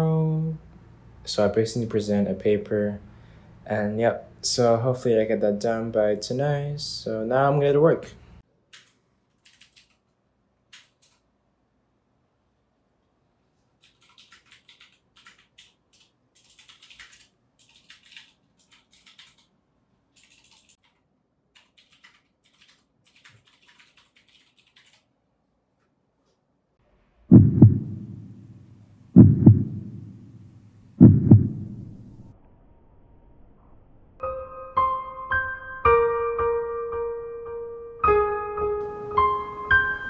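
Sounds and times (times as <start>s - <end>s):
heartbeat thumps: 27.3s - 32.2s.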